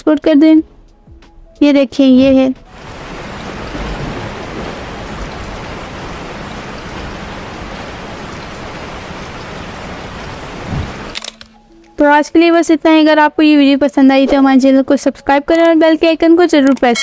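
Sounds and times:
steady rain: 2.6s - 11.2s.

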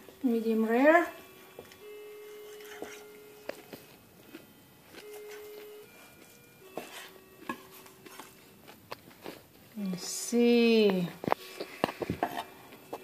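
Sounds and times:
knife and fork on cutting board: 2.5s - 3.1s, 6.7s - 8.4s, 11.7s - 12.6s.

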